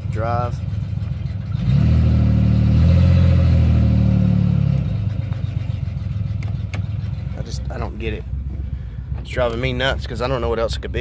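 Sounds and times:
car engine revving: 0.0s - 7.9s.

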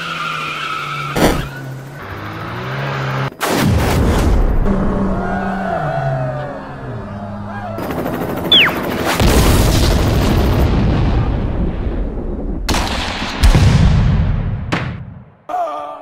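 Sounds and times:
falling whistle: 8.5s - 8.9s
loud explosion: 9.2s - 14.7s.

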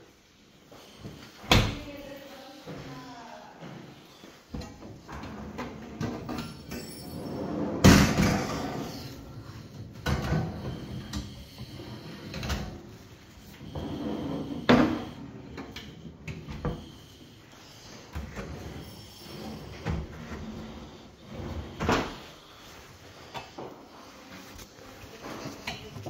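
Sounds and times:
drawers knocking shut: 7.8s - 8.8s.

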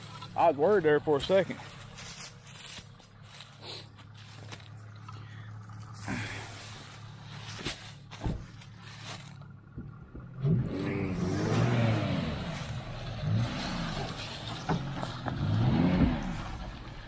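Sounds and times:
pickup truck engine revving: 1.9s - 17.0s.

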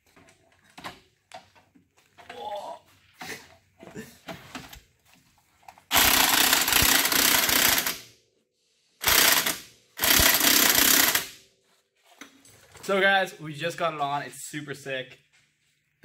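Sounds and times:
impact wrench hammering: 5.9s - 8.1s, 9.0s - 11.4s.

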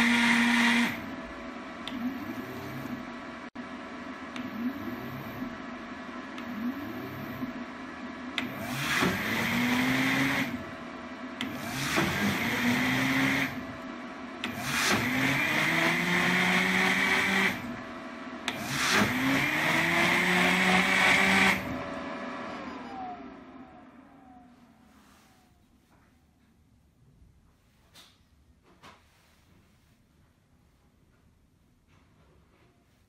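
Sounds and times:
blender motor bursts: 0.0s - 1.0s, 8.4s - 10.6s, 11.4s - 13.6s, 14.4s - 17.8s, 18.5s - 24.4s.

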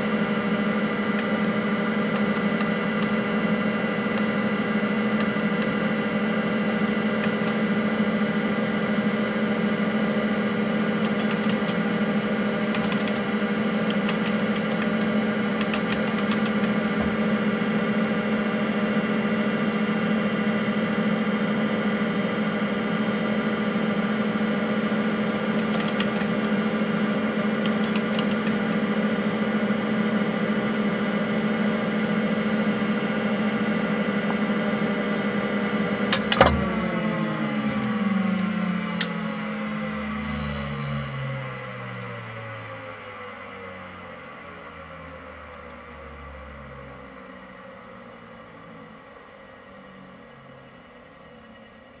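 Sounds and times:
computer whir and hum: 0.0s - 52.0s
hard drive clicking: 11.1s - 11.8s, 13.9s - 17.2s, 27.6s - 28.8s, 36.1s - 39.2s.

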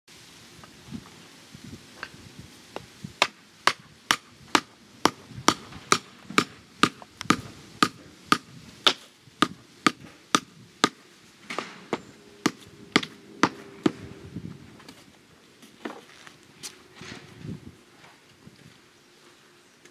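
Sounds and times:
hammer striking: 3.2s - 14.0s.

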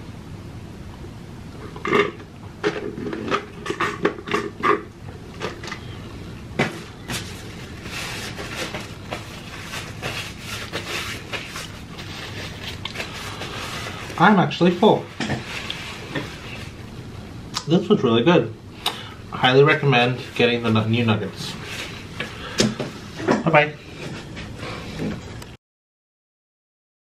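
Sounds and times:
paper napkin rustling: 6.7s - 16.8s, 20.0s - 22.1s.

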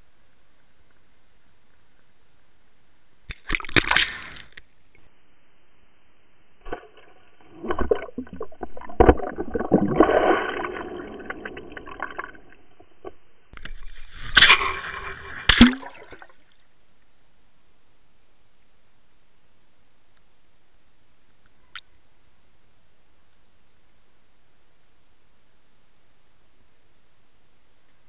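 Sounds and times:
faint steady hiss: 0.0s - 7.4s, 13.2s - 28.0s
water rushing and gurgling: 13.7s - 16.5s.

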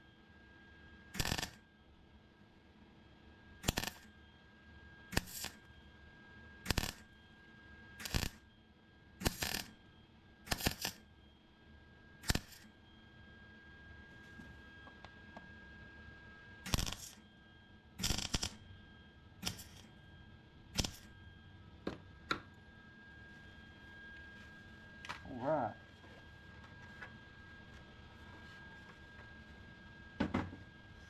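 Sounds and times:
welder arc bursts: 1.2s - 1.6s, 3.6s - 4.0s, 5.1s - 5.6s, 6.7s - 7.0s, 8.0s - 8.4s, 9.2s - 9.7s, 10.5s - 11.0s, 12.2s - 12.6s, 16.7s - 17.2s, 18.0s - 18.6s, 19.4s - 19.9s, 20.8s - 21.1s.

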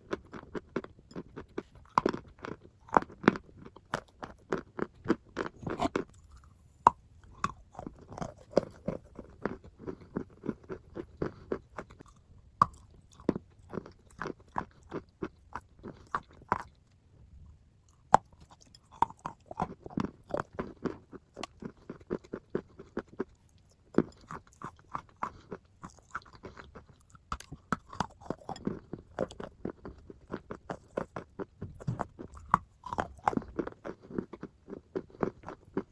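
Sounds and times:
chewing crunchy chalk: 0.0s - 16.8s, 17.9s - 35.9s.

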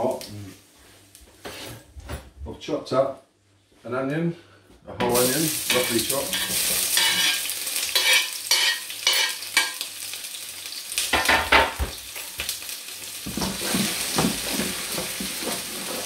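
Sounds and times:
onion sizzling in a frying pan: 0.0s - 1.6s, 5.0s - 16.0s
pan crackling and scraping: 5.1s - 9.9s, 13.2s - 16.0s.

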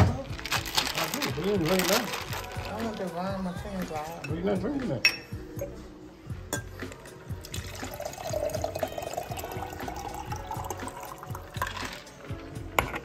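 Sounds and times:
drink pouring into a glass: 7.4s - 12.1s.

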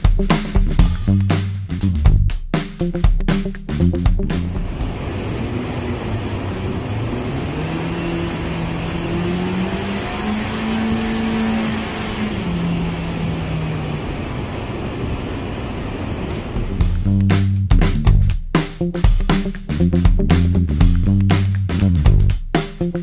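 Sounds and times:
car engine revving on dynamometer: 4.5s - 16.6s.

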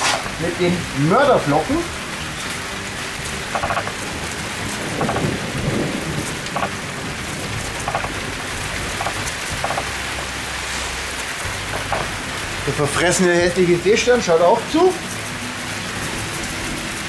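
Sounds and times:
heavy rain: 0.0s - 17.0s
thunder rumble: 3.1s - 12.8s.

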